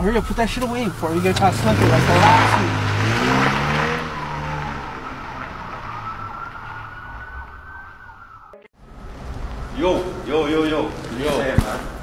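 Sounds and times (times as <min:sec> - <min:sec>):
faint high tone rising in pitch: 0:00.0 - 0:08.7
car engine pulling away: 0:00.0 - 0:12.0.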